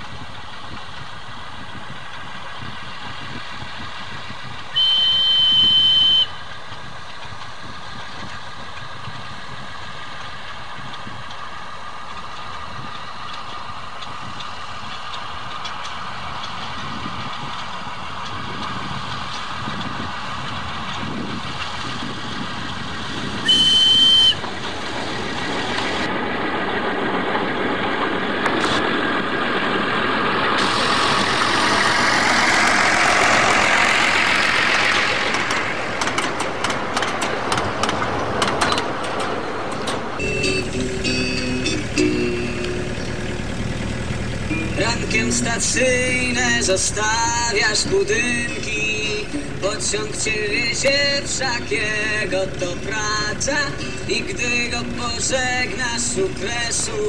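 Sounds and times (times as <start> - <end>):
diesel locomotive running: 0.0 - 57.0
wheels clicking over rail joints: 0.0 - 57.0
locomotive horn blast: 4.7 - 6.4, 23.4 - 24.4, 40.2 - 43.0, 44.4 - 45.7.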